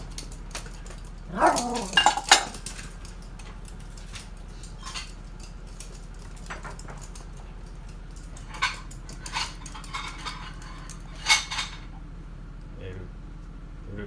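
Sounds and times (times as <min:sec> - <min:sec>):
light clatter: 0:00.0 - 0:12.0.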